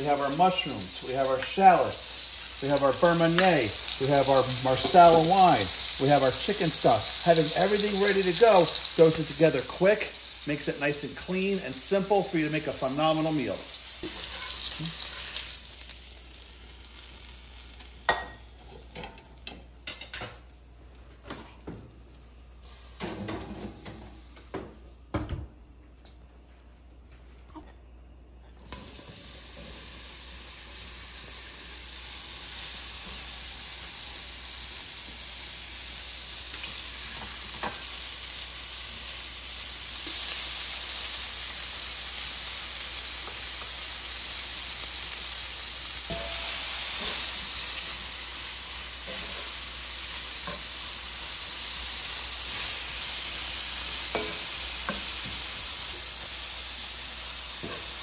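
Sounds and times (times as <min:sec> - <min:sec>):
mushrooms sizzling in a pan: 0:00.0 - 0:24.6, 0:28.7 - 0:58.0.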